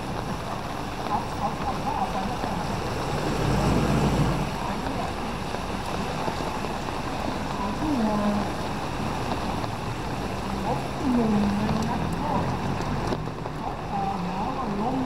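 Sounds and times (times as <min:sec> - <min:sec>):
tyres hissing on wet road: 0:00.0 - 0:15.0
vehicle engine passing: 0:01.9 - 0:06.0, 0:10.4 - 0:13.5.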